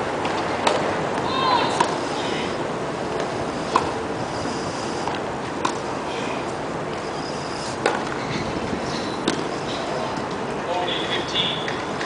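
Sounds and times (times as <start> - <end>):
steady background hiss: 0.0 - 12.0
tennis ball struck by racquet: 9.2 - 9.5.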